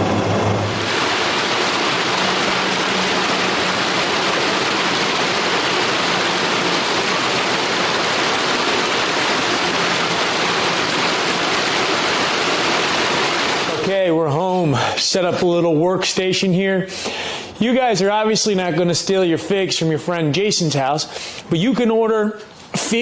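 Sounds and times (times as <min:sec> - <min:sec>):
stream running over rocks: 0:00.7 - 0:14.2.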